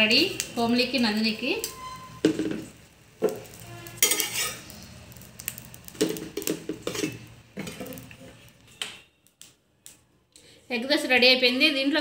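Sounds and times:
spatula scraping on griddle: 3.3s - 4.9s, 6.4s - 8.5s.

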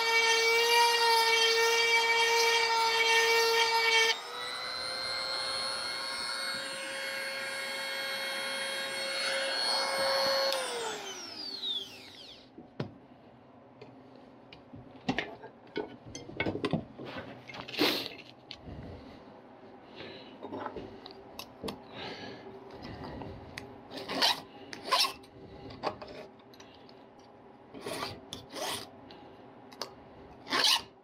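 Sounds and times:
electric sharpener motor whining: 0.0s - 12.5s.

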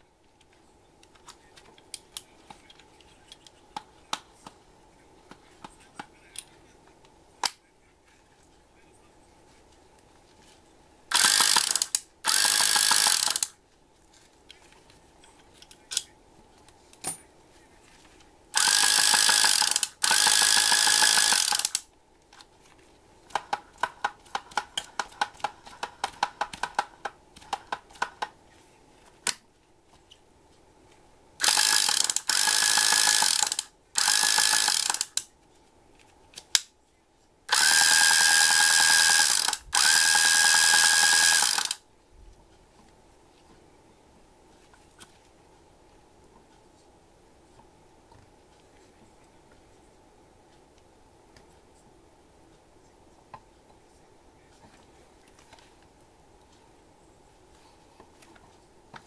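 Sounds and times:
fishing reel motor whirring: 11.1s - 13.5s, 18.6s - 21.8s, 31.4s - 35.2s, 37.5s - 41.8s
reel mechanism clicks: 11.1s - 13.5s, 18.6s - 21.8s, 31.4s - 35.3s, 37.5s - 41.8s.

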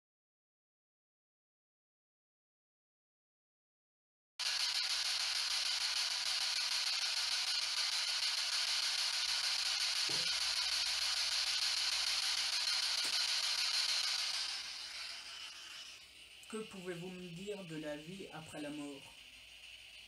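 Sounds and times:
radio static hiss: 4.4s - 20.0s.

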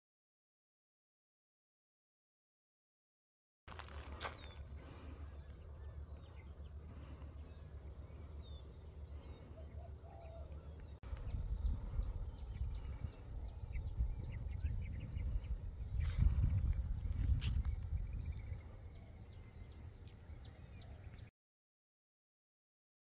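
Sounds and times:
small birds chirping: 4.0s - 21.3s
wind on microphone: 11.1s - 21.0s.

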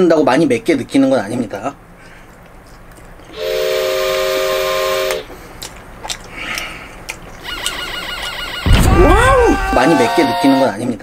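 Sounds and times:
cartoon steam whistle: 3.4s - 5.3s, 8.6s - 10.7s.

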